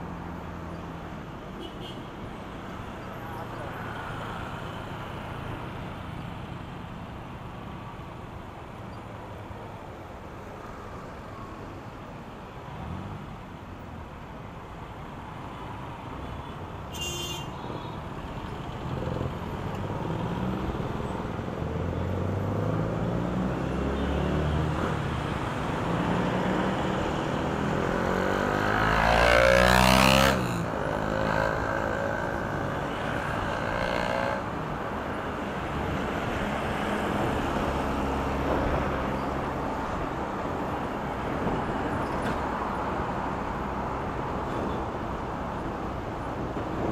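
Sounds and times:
road and wind noise: 0.0 - 46.9
car and motorcycle engines: 18.3 - 46.9.

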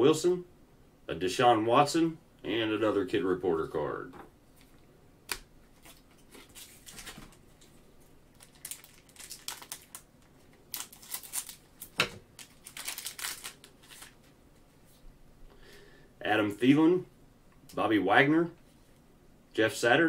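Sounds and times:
plastic wrapper crinkling: 5.8 - 14.3.

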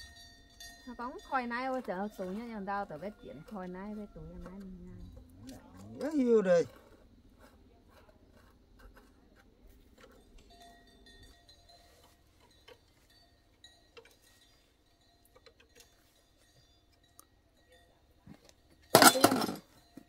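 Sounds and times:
light ticks and clinks: 0.0 - 6.8, 9.4 - 20.0
parts clattering in wire basket: 18.9 - 19.7.

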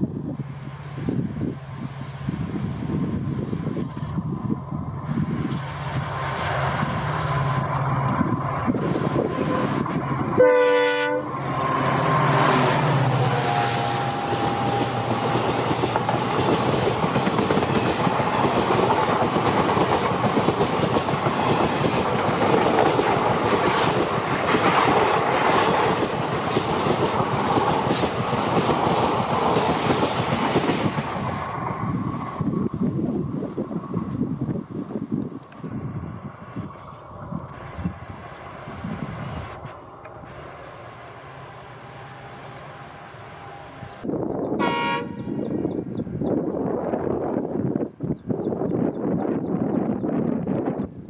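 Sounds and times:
locomotive engine running: 0.5 - 33.6
train horn blast: 9.2 - 15.1, 44.6 - 45.5
train wheels clattering on rails: 14.0 - 32.8.

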